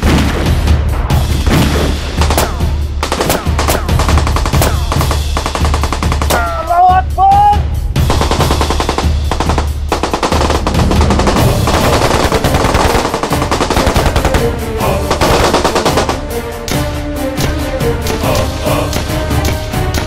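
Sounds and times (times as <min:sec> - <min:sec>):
automatic rifle fire: 0:01.5 - 0:06.6, 0:08.1 - 0:14.5, 0:15.1 - 0:16.2.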